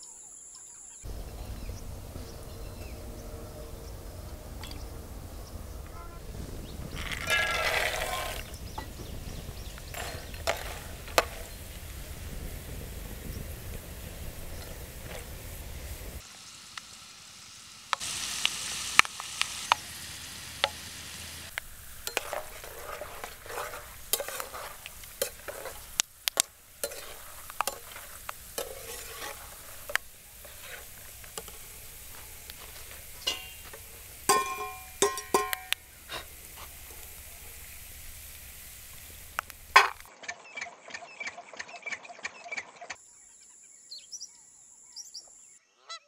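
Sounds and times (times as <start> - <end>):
peanuts sizzling in oil: 0.0 - 40.1
spatula scraping metal pan: 7.0 - 8.6, 9.9 - 11.6, 21.6 - 37.0
ringing metal clinks: 34.3 - 35.8.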